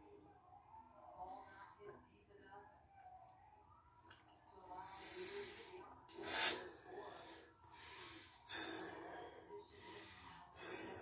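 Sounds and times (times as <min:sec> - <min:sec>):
hissing breaths: 0:04.8 - 0:11.0.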